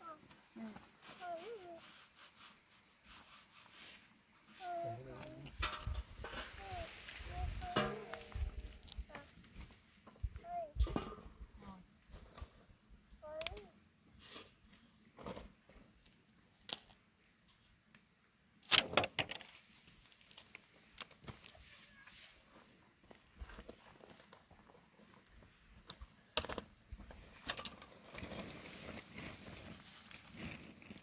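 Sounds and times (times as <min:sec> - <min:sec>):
grain rustling: 0:00.1 - 0:05.4, 0:27.2 - 0:31.0.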